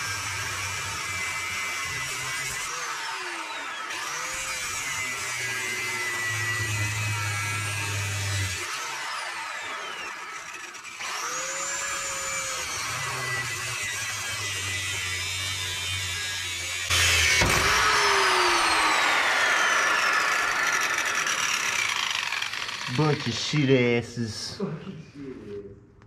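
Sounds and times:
angle grinder grinding steel: 0:00.0 - 0:24.2.

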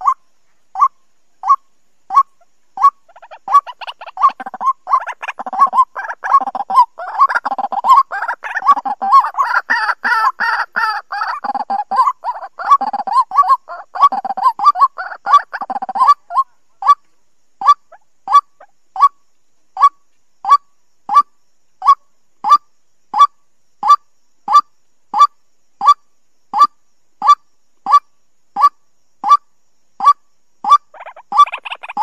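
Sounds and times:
waterhen calling: 0:00.0 - 0:00.2, 0:00.8 - 0:17.0, 0:30.0 - 0:32.0.

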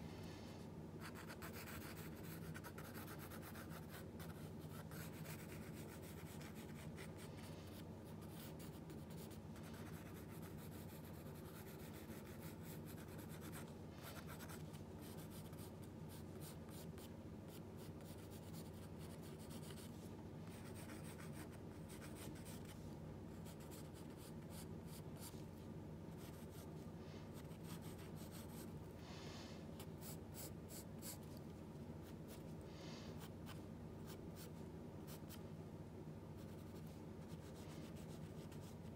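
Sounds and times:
steady low hum: 0:00.0 - 0:38.9
pencil scratching on paper: 0:01.0 - 0:19.9, 0:20.5 - 0:22.8, 0:27.3 - 0:28.7.

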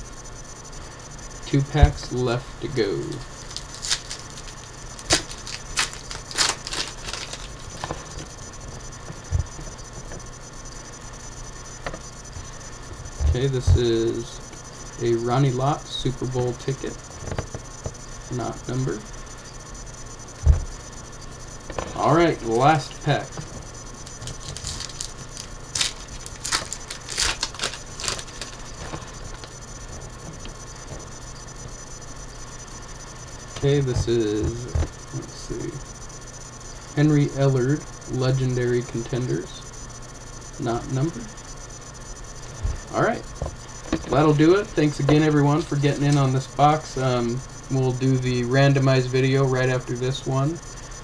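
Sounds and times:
cards rustling and sliding: 0:03.4 - 0:08.2, 0:24.2 - 0:29.5
foil wrapper crinkling: 0:03.4 - 0:08.2, 0:24.1 - 0:29.6.

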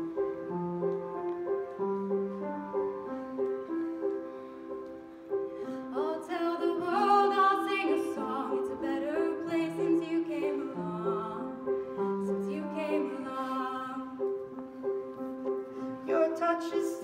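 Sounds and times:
soft instrumental accompaniment: 0:00.0 - 0:17.0
girl singing: 0:05.9 - 0:11.6.

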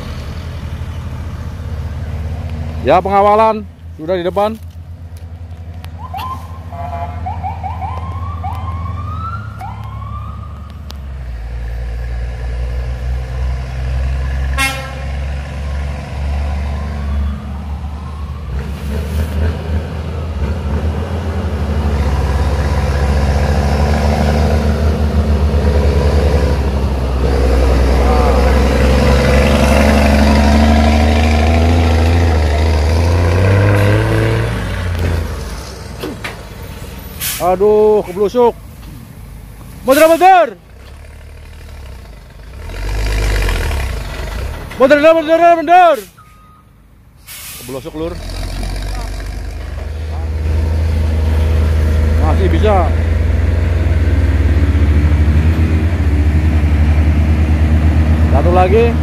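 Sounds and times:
truck diesel engine straining: 0:00.0 - 0:04.8, 0:18.4 - 0:59.0
police siren sweeps: 0:06.0 - 0:10.9, 0:16.7 - 0:19.2.

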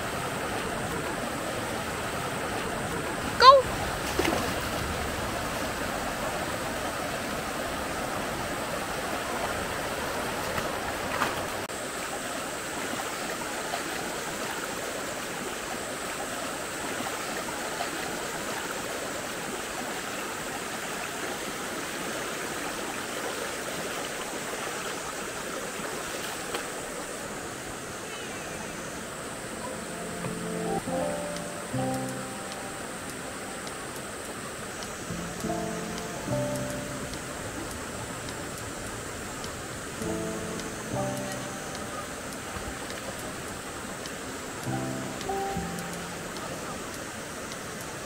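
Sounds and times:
water splashes: 0:00.0 - 0:30.5
stream rushing over stones: 0:00.0 - 0:48.0.

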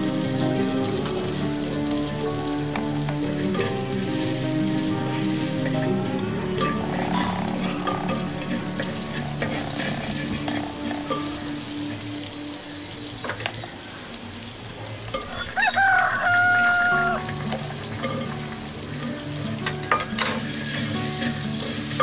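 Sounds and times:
oil sizzling in a pot: 0:00.0 - 0:22.0
rooster crowing: 0:15.2 - 0:17.3.

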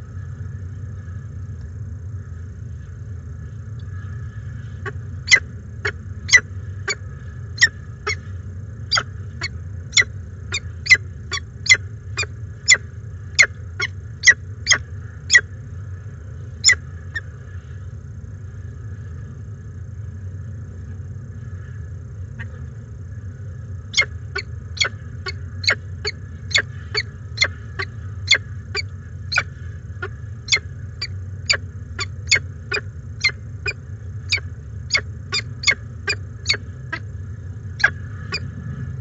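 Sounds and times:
steady low hum: 0:00.0 - 0:39.0
falcon calling: 0:04.8 - 0:07.0, 0:08.9 - 0:12.8, 0:23.9 - 0:37.1, 0:37.8 - 0:38.5.

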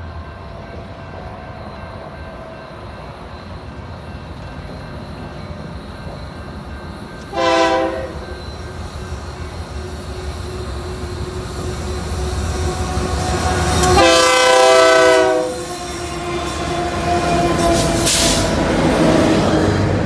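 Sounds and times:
diesel locomotive engines rumbling: 0:00.0 - 0:20.0
train wheel noise: 0:00.0 - 0:20.0
locomotive horn blast: 0:07.2 - 0:08.3, 0:12.5 - 0:18.6.

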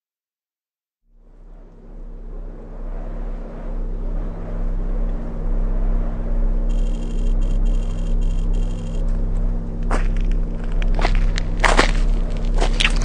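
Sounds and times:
low rumbling drone: 0:01.0 - 0:13.0
high electronic chirps: 0:06.7 - 0:09.1.

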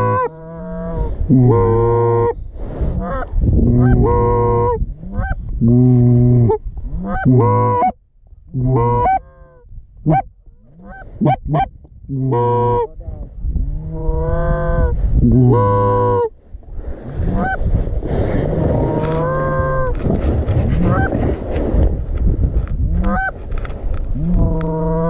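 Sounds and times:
goose honking: 0:00.0 - 0:00.8, 0:07.0 - 0:08.0, 0:08.6 - 0:12.9, 0:14.2 - 0:16.3, 0:18.8 - 0:19.9, 0:20.8 - 0:21.1, 0:23.0 - 0:23.3
goose clucking: 0:06.5 - 0:08.0, 0:08.6 - 0:12.9, 0:14.2 - 0:16.3, 0:18.8 - 0:19.9, 0:20.8 - 0:21.2, 0:23.0 - 0:23.4.

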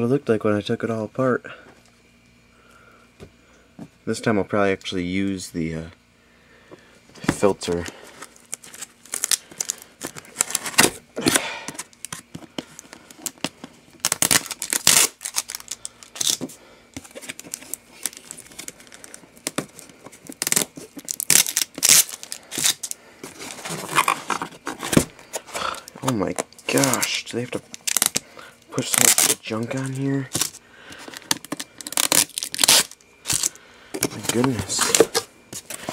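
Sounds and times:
cardboard box being opened: 0:23.3 - 0:25.6, 0:33.3 - 0:35.9.

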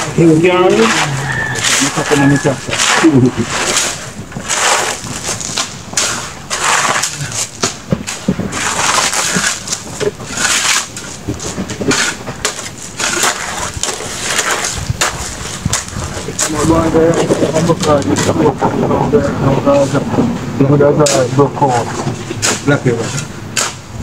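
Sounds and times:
shovel scraping into gravel: 0:00.7 - 0:17.4.

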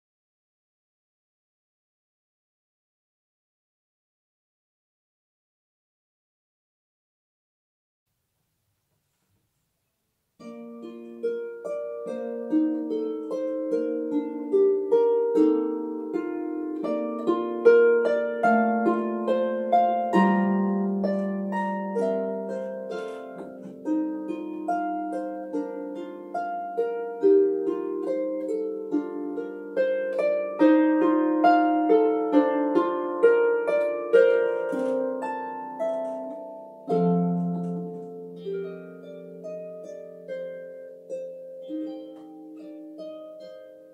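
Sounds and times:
solo harp playing: 0:10.4 - 0:43.9.

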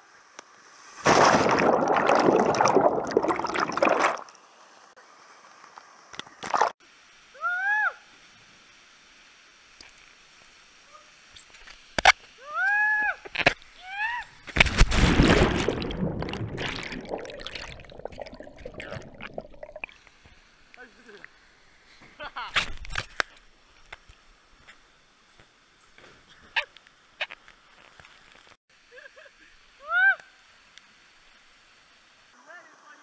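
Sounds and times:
water rushing and splashing: 0:00.9 - 0:04.4, 0:14.6 - 0:20.2
underwater plunge: 0:01.0 - 0:04.3, 0:14.5 - 0:19.9.

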